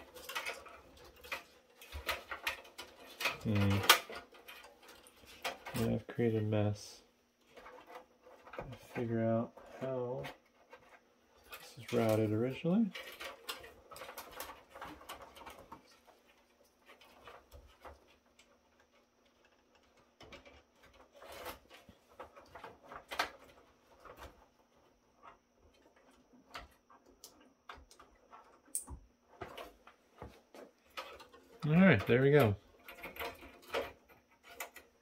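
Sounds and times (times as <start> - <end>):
cables and plastic connectors clicking: 0.0 - 6.8, 25.2 - 35.0.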